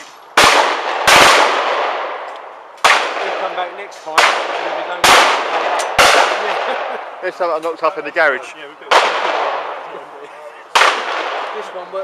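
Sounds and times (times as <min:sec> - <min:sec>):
shotgun shots with echo: 0:00.4 - 0:07.0, 0:08.9 - 0:09.8, 0:10.7 - 0:11.8.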